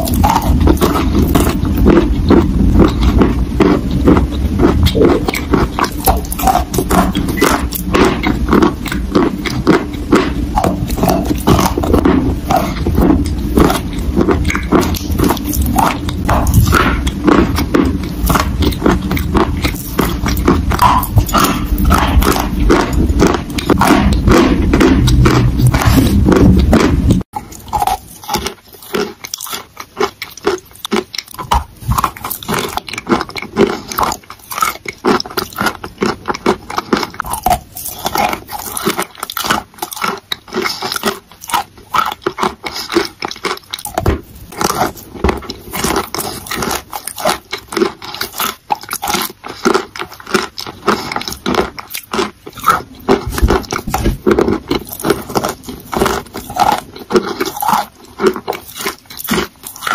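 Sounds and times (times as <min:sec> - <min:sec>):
chalk being chewed: 0:00.0 - 0:59.9.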